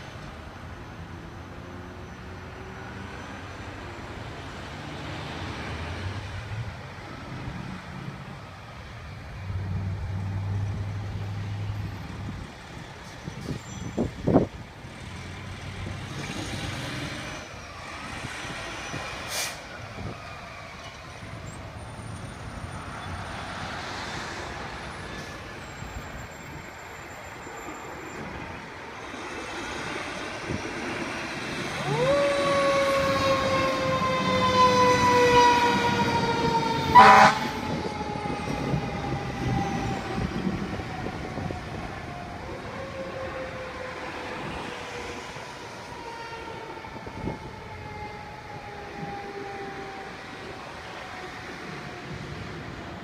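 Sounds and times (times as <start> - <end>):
air brakes hissing: 19.2 - 19.8.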